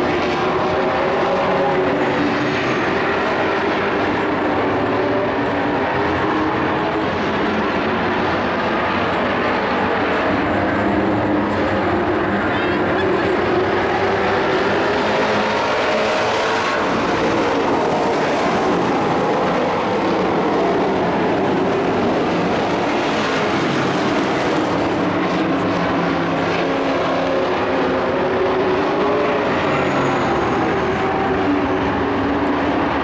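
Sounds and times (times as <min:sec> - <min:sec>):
race truck engines droning: 0:00.0 - 0:33.0.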